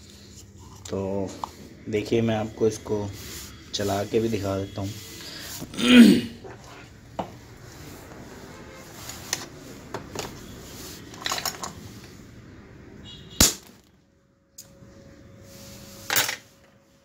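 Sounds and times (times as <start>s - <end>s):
knocks and clicks of handling parts: 11.1s - 11.8s.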